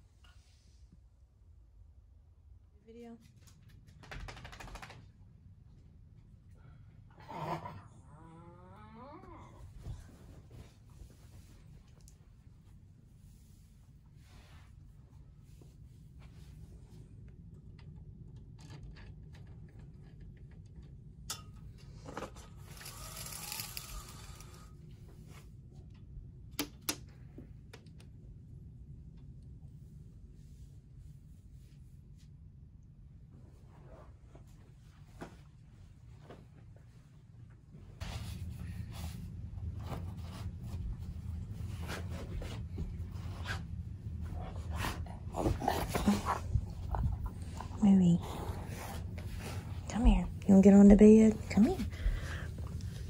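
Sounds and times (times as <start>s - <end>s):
low steady hum: 5.0s - 53.0s
window blind slats clicking: 22.6s - 24.6s.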